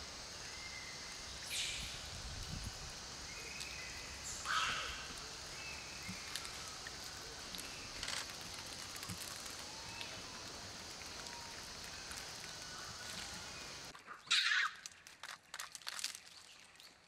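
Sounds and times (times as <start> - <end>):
steady hiss: 0.0 - 13.9
thin high calls: 3.2 - 16.5.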